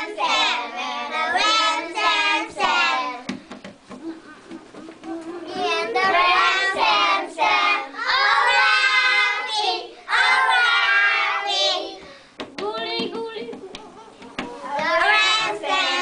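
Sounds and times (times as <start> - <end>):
children singing together: 0.0 - 3.3, 5.1 - 12.1, 14.7 - 16.0.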